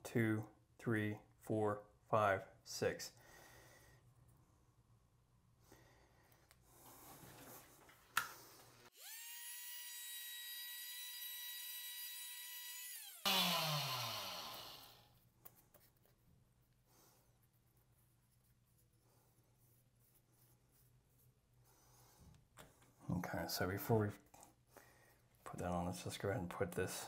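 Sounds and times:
power tool grinding plastic: 9.0s - 15.0s
power tool whining: 9.0s - 15.0s.

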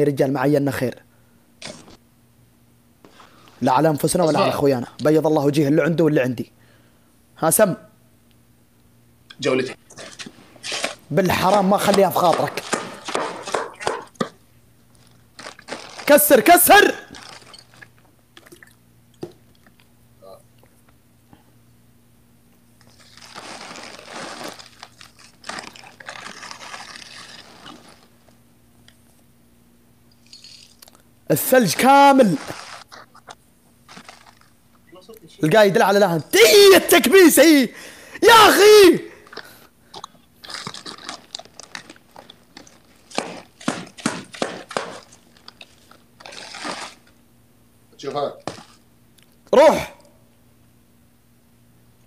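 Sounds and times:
ice crunching and crackling: 14.9s - 18.0s, 22.8s - 28.3s, 31.6s - 32.9s, 33.9s - 34.6s, 40.4s - 47.2s.

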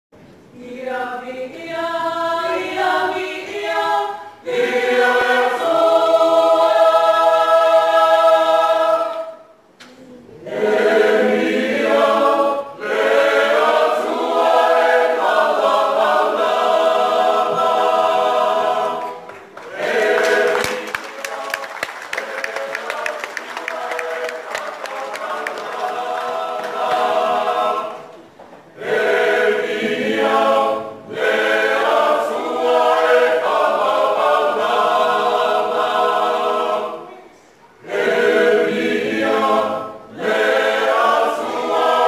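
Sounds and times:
mixed choir singing: 0.5s - 9.6s, 10.3s - 42.0s.

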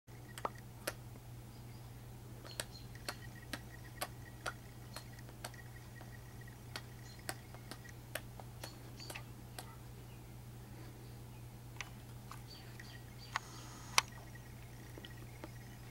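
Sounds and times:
steady low hum: 0.1s - 15.9s
sharp light clicks: 2.4s - 9.7s.

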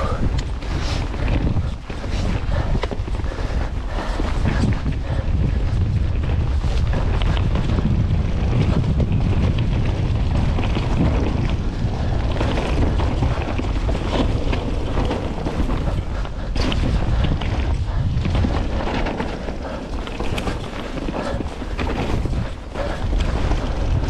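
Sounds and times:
bike knocks and rattles: 0.0s - 24.0s
tyres rumbling on dirt trail: 0.0s - 24.0s
wind buffeting microphone: 0.0s - 24.0s.

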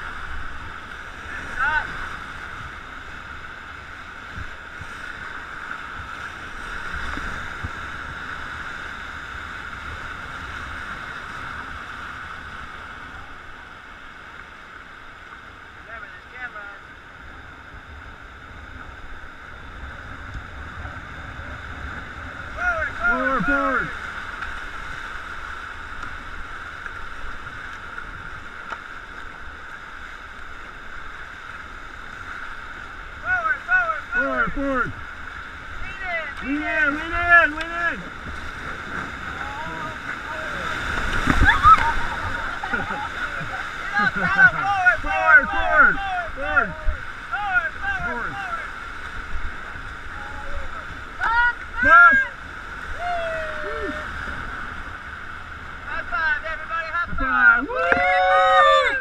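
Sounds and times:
wind rumble on microphone: 0.0s - 13.8s, 34.3s - 47.2s
whitewater rushing: 0.0s - 59.0s
wind buffeting microphone: 38.0s - 47.1s.

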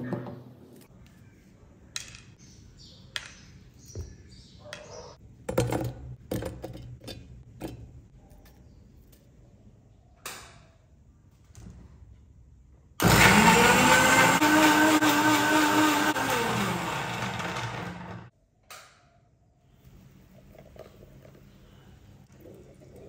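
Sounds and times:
mixer grinder motor running: 13.0s - 18.3s.

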